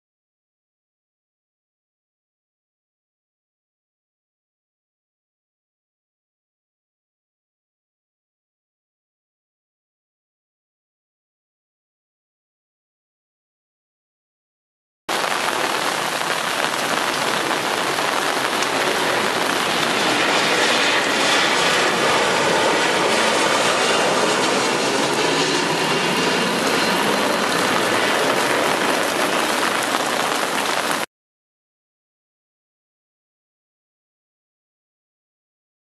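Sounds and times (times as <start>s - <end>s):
rain hissing: 15.1s - 31.1s.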